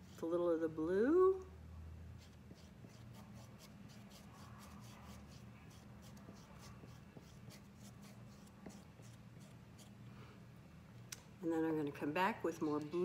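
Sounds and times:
low steady hum: 0:00.0 - 0:13.0
squeegee scraping paste on stencil: 0:02.2 - 0:10.0.

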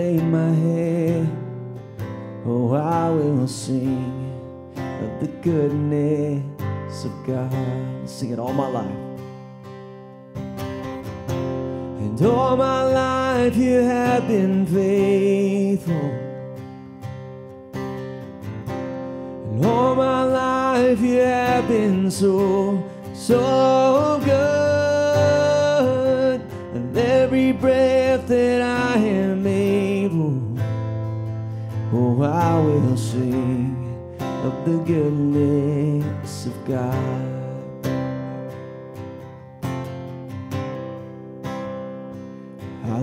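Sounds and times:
man singing worship song: 0:00.0 - 0:01.4, 0:02.4 - 0:09.1, 0:12.0 - 0:16.4, 0:19.4 - 0:30.6, 0:31.9 - 0:37.8
strummed acoustic guitar: 0:00.0 - 0:43.0.

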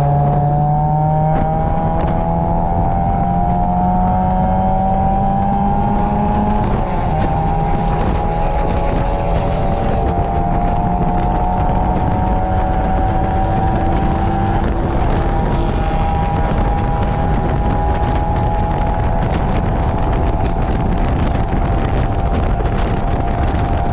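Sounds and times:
car engine running hard: 0:00.0 - 0:23.9
wind rushing over microphone: 0:00.0 - 0:23.9.

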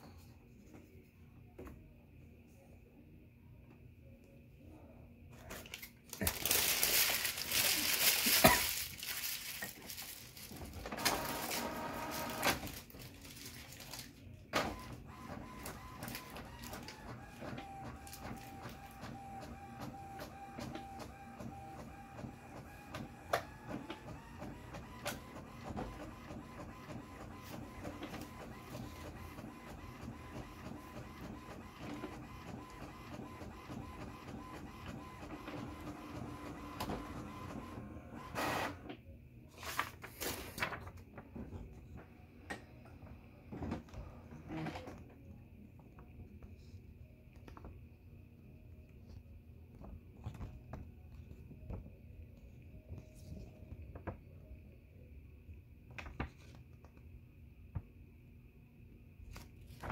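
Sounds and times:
printer mechanism noise: 0:10.5 - 0:12.9, 0:14.5 - 0:39.0
printer whirring: 0:10.6 - 0:12.9, 0:14.5 - 0:39.0.

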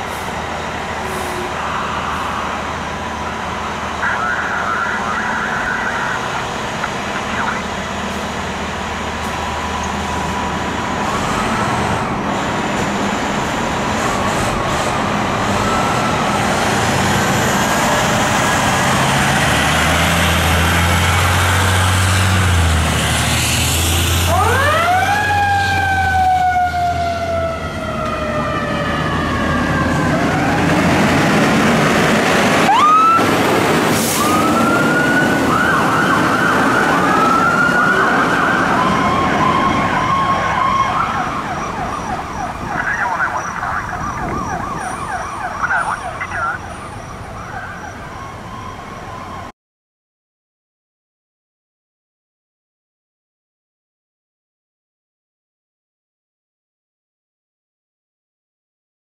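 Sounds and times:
diesel engines running: 0:00.0 - 0:49.5
electronic sirens wailing: 0:01.0 - 0:08.3, 0:13.6 - 0:17.6, 0:24.2 - 0:49.5.

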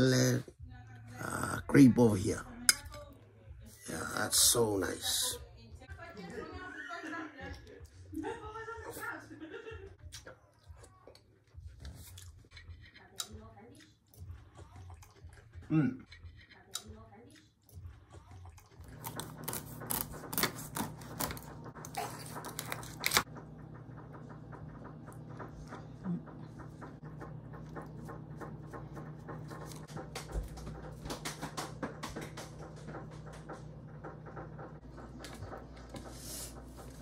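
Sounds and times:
steady low hum: 0:17.8 - 0:37.0.

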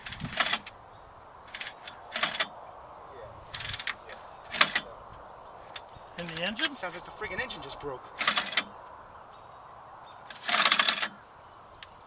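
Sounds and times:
engine pull-starter rasping: 0:01.5 - 0:02.5, 0:08.2 - 0:08.7, 0:10.3 - 0:11.2.

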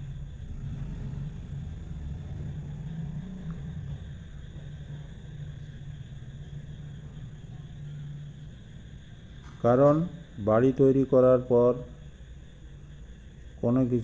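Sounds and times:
low rumbling hum: 0:00.0 - 0:10.4.

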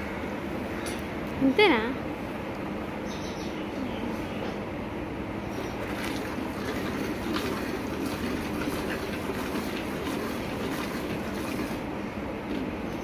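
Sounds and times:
milk squirting into a steel pail: 0:05.7 - 0:11.9.

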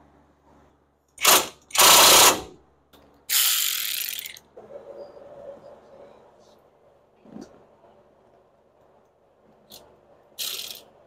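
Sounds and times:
cordless ratchet spinning a nut: 0:03.3 - 0:04.4, 0:10.4 - 0:10.9.

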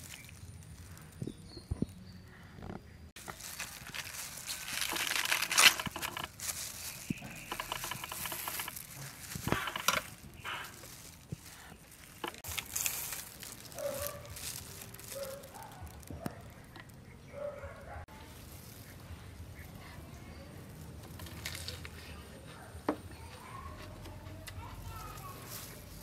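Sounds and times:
cabbage leaves crinkling and tearing: 0:00.0 - 0:02.0, 0:03.2 - 0:17.2, 0:20.7 - 0:22.2, 0:24.4 - 0:26.0
plastic glove rustling: 0:00.0 - 0:02.0, 0:03.2 - 0:17.2, 0:24.9 - 0:26.0.

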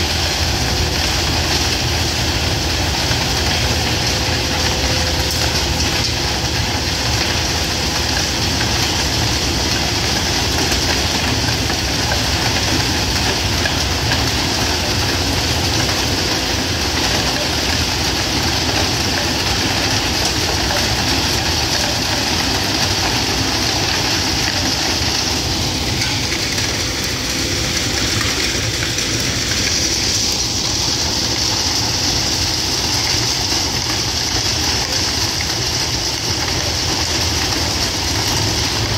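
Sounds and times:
diesel engine running: 0:00.0 - 0:38.9
sweeper clearing ballast stones: 0:00.0 - 0:38.9.

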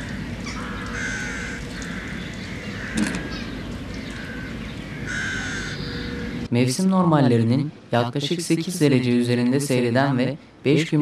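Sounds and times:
crows cawing: 0:00.0 - 0:06.5
steady background hiss: 0:00.0 - 0:11.0.

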